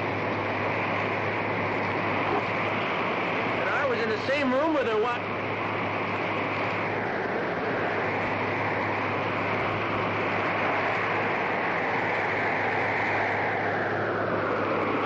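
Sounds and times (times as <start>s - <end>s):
low hum: 0.0s - 15.0s
rushing wind: 0.0s - 15.0s.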